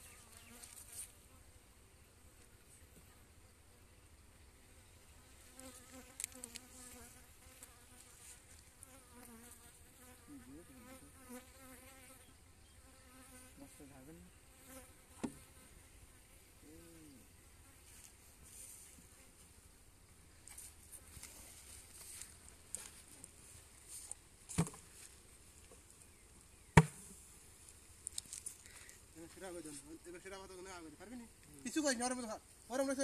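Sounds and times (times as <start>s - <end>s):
honeybees buzzing: 0.0s - 3.4s, 4.0s - 33.0s.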